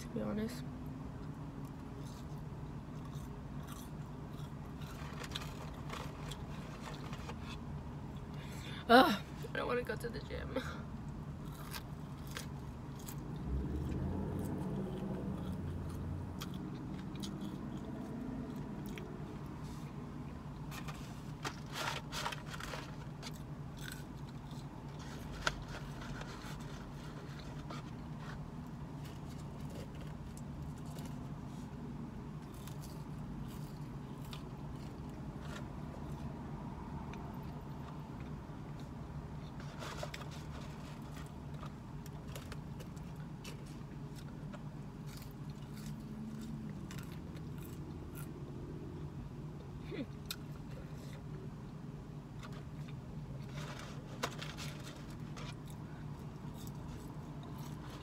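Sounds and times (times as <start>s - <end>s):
steady low hum: 0.0s - 58.0s
person chewing fries: 1.2s - 8.4s, 11.0s - 48.9s, 49.6s - 58.0s.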